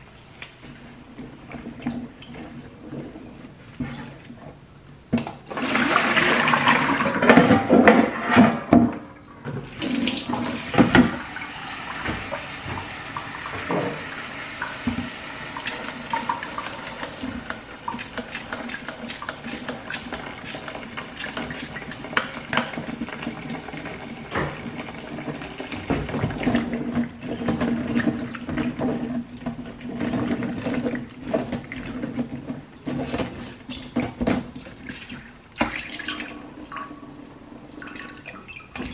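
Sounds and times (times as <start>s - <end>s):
tap running into a colander: 10.1s - 26.7s.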